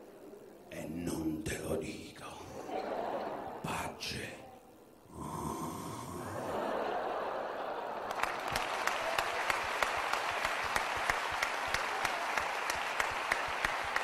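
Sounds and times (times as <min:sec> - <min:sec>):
audience applauding: 0:07.6 - 0:14.0
close sharp claps: 0:08.1 - 0:14.0.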